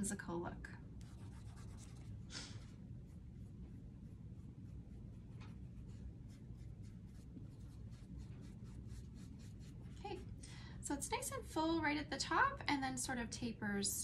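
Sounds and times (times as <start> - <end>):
low room hum: 0.0 - 14.0
paintbrush strokes on board: 1.0 - 10.3.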